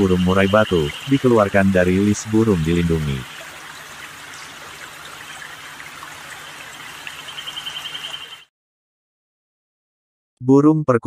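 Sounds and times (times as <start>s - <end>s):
running water rushing: 0.0s - 8.5s.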